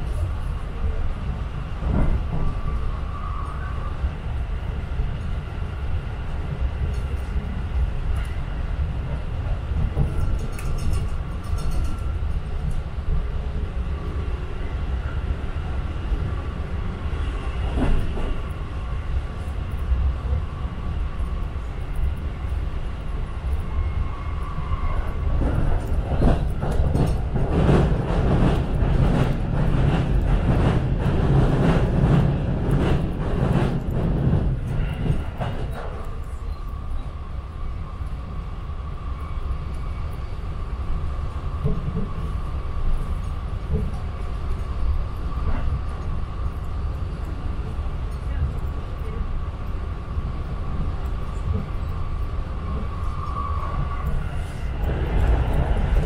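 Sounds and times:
train wheels rumbling on rails: 0.0 - 56.0
train wheels clattering: 9.8 - 12.8, 25.0 - 36.6.

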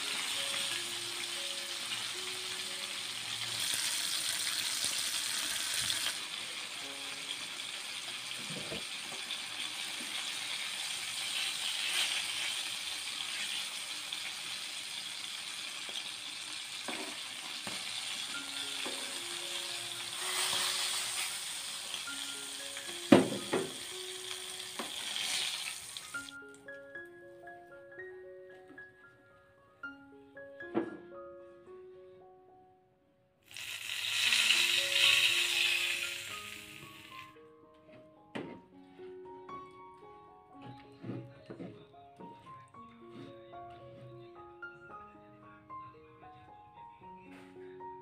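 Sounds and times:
fish sizzling in hot oil: 0.0 - 26.3, 33.4 - 37.3.

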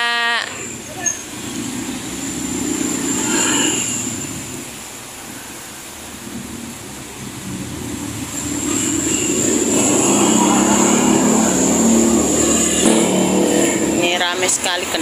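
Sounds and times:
thin high whine: 0.0 - 4.8, 8.2 - 14.4
motorbikes passing on road: 0.0 - 15.0.

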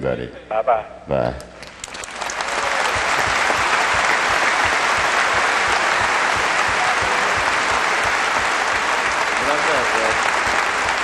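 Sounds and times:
audience applauding: 1.6 - 11.0.

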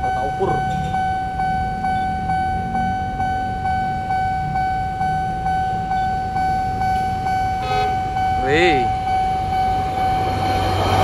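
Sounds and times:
level crossing alarm ringing: 0.0 - 11.0
horn toot: 7.6 - 8.0.

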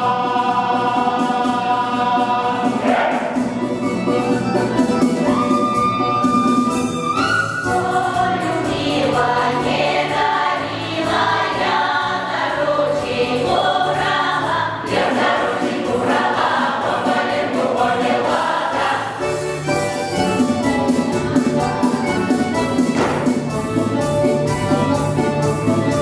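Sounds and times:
mixed choir singing: 0.0 - 3.7, 7.3 - 19.3.

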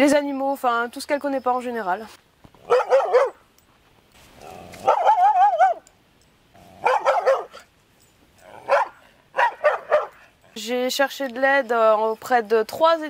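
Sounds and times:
dog barking aggressively: 2.6 - 3.4, 4.5 - 5.8, 6.6 - 7.7, 8.4 - 10.3.

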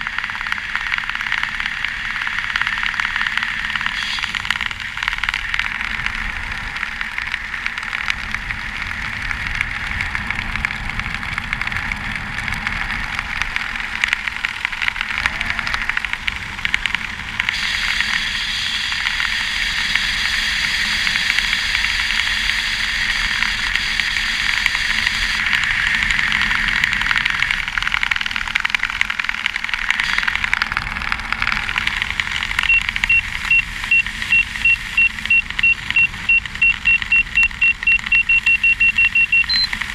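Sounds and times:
short high electronic beeps: 32.7 - 39.8.

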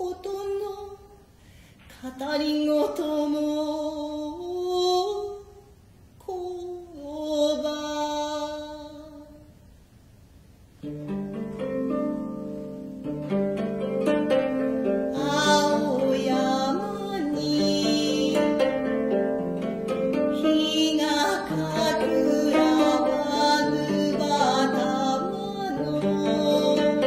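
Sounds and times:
plucked strings ringing pattern: 10.8 - 27.0.

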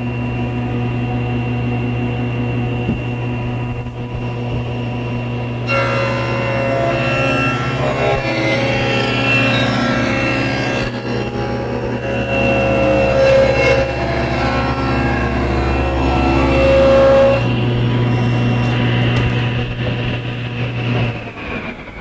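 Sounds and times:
table saw motor hum: 0.0 - 22.0
saw blade cutting wood: 5.6 - 21.3.

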